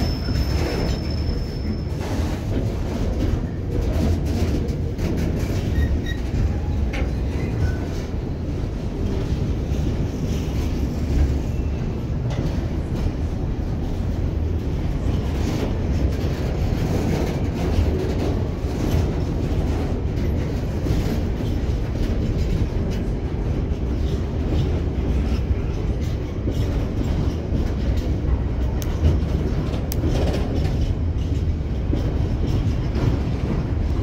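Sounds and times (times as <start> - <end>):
train wheels rumbling on rail: 0.0 - 34.0
wheels clicking over rail joints: 12.2 - 34.0.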